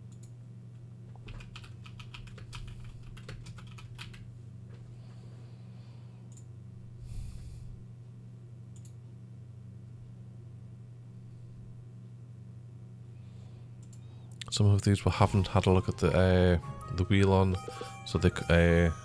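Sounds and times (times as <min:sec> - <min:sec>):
computer keyboard typing: 0:01.2 - 0:04.3.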